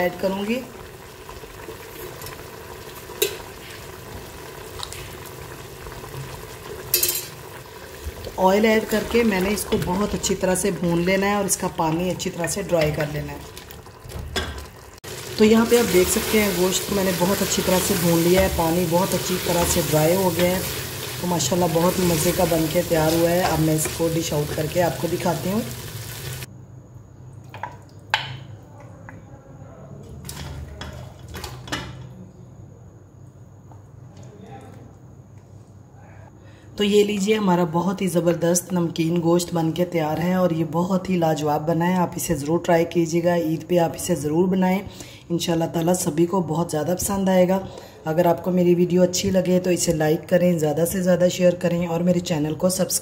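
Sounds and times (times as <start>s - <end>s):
broth bubbling in a pot: 0.2s - 26.5s
spoon clinking on metal pot: 6.9s - 7.4s.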